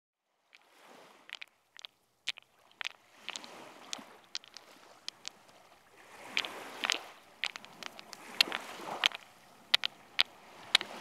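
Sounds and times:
percussive clicks and knocks: 0:01.3 - 0:11.0.

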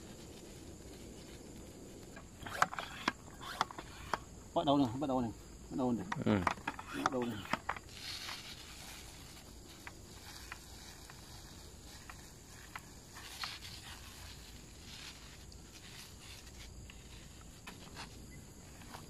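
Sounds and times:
pump sprayer spurts: 0:02.2 - 0:04.3, 0:06.4 - 0:19.0.

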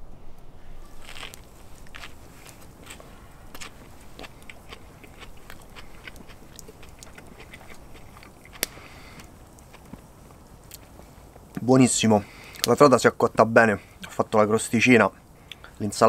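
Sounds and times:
person crunching while chewing: 0:00.9 - 0:10.1.

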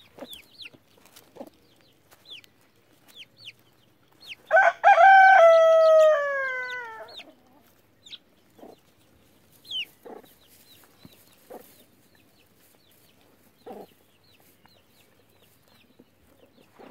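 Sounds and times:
chick peeps: 0:00.0 - 0:04.5, 0:05.6 - 0:16.9
hen clucks: 0:00.0 - 0:04.5, 0:05.8 - 0:16.9
rooster crowing: 0:04.5 - 0:07.2.

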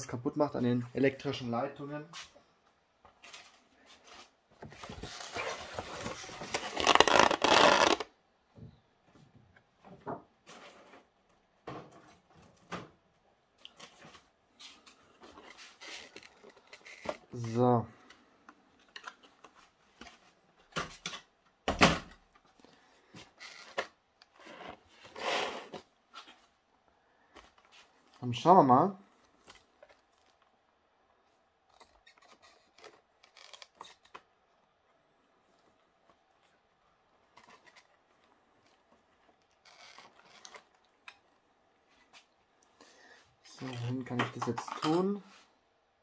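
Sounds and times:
plastic packaging crinkling: 0:04.9 - 0:08.1, 0:36.0 - 0:41.4.

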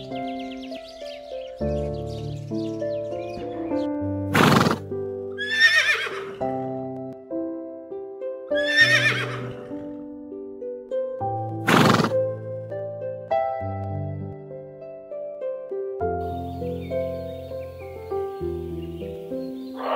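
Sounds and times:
gentle background music: 0:00.0 - 0:19.9
horse whinnying: 0:04.3 - 0:04.8, 0:05.4 - 0:06.4, 0:08.6 - 0:09.8, 0:11.7 - 0:12.2.

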